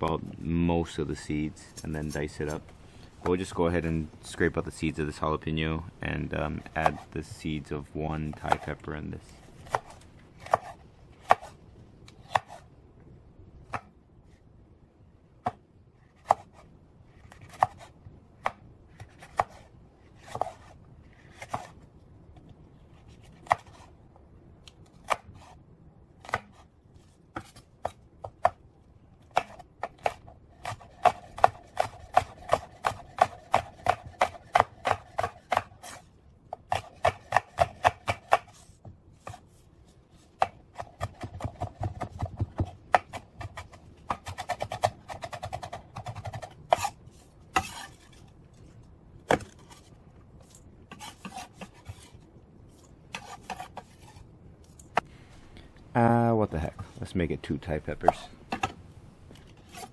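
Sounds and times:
knife chopping on wooden board: 29.3s - 38.6s, 40.4s - 47.0s, 49.3s - 49.8s.

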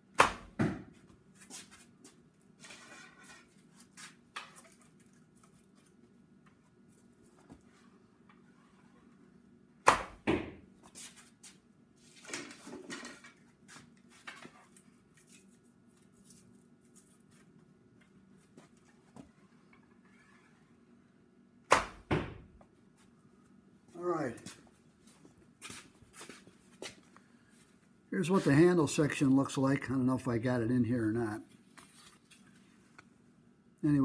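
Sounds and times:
bow shot crack: 0.2s - 0.6s, 9.8s - 10.3s, 21.7s - 22.4s
arrow hitting target: 0.2s - 0.9s, 9.8s - 10.6s, 21.7s - 22.5s.

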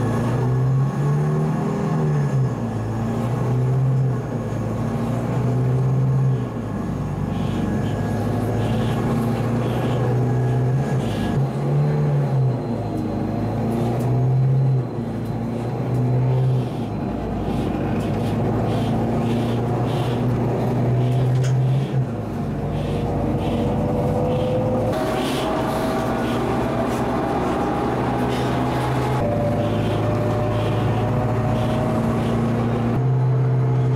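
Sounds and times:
bus engine running: 0.0s - 33.9s.

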